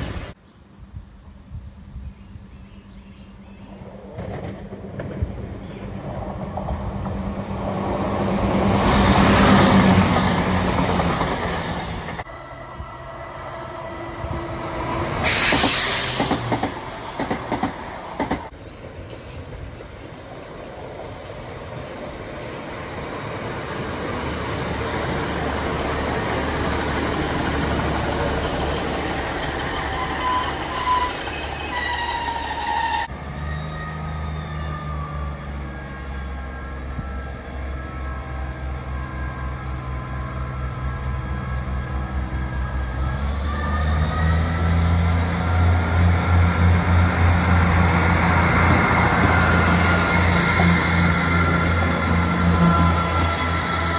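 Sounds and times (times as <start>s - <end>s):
diesel train passing: 0.0s - 53.9s
train brakes squealing: 14.8s - 17.0s, 28.9s - 46.0s, 47.7s - 53.9s
diesel train engine running: 33.0s - 53.9s.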